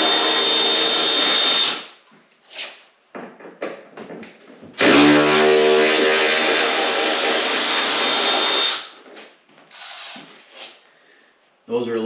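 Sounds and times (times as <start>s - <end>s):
power drill whining: 0.0s - 1.9s, 4.8s - 8.9s, 9.7s - 10.4s.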